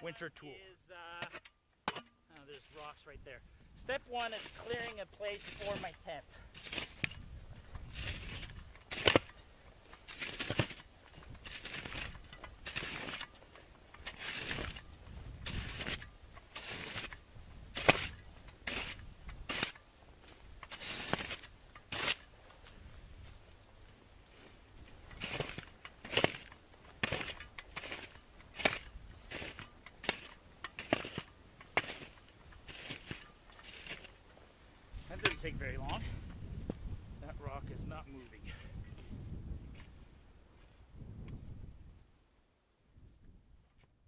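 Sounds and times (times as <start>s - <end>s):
shovel scraping snow: 0.0s - 3.2s, 3.8s - 23.5s, 24.2s - 36.0s
low wind rumble: 3.1s - 4.1s, 6.2s - 9.8s, 14.0s - 16.4s, 34.6s - 42.2s.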